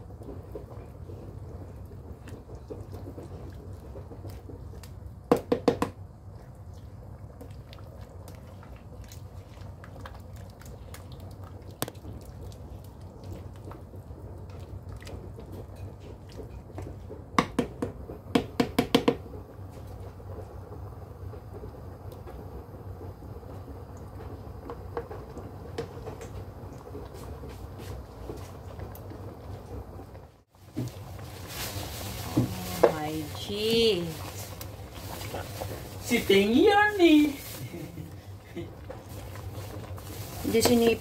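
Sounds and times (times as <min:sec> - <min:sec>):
thick liquid sloshing in pan: 0:00.0 - 0:18.3, 0:23.5 - 0:41.0
utensil knocking against pan: 0:05.3 - 0:05.9.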